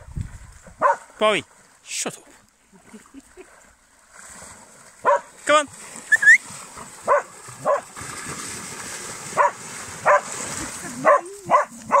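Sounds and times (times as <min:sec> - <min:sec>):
dogs splashing through water: 0:00.0 - 0:12.0
dog barking: 0:00.8 - 0:01.1, 0:05.0 - 0:05.3, 0:07.1 - 0:07.9, 0:09.4 - 0:10.3, 0:11.0 - 0:12.0.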